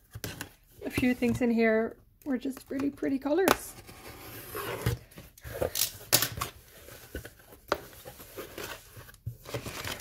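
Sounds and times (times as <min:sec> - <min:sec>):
cardboard tearing: 0:08.3 - 0:10.0.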